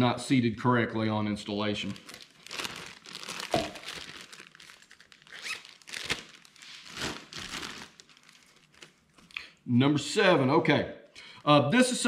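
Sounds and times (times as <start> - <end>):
plastic bag crinkling: 1.8 - 9.4.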